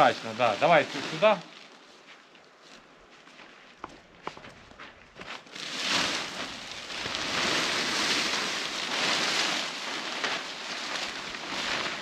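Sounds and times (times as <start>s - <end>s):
plastic sheet crinkling: 5.4s - 12.0s.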